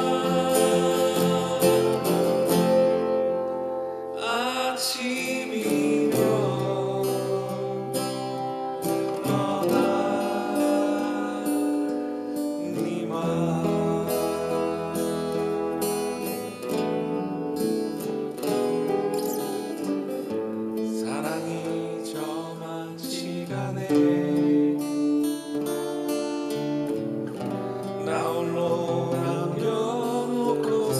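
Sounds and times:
man singing a ballad: 0.0s - 26.2s, 27.6s - 30.9s
acoustic guitar picking and chords: 0.0s - 30.9s.

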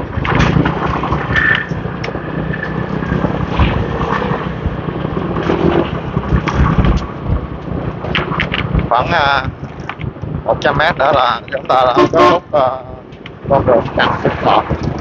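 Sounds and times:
scooter engines rumbling: 0.0s - 15.0s.

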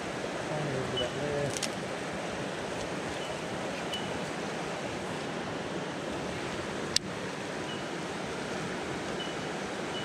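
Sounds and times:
creek water flowing: 0.0s - 10.0s.

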